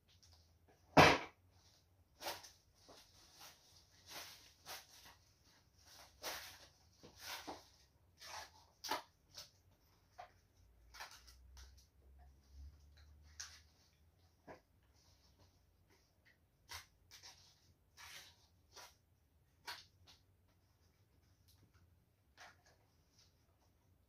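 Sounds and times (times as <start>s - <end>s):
leaves and plastic sheeting rustling: 2.2s - 8.4s.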